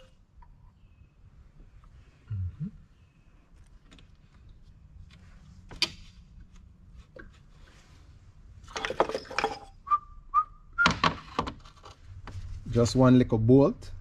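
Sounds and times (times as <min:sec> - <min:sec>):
short whistle-like tones: 0:09.8 - 0:11.0.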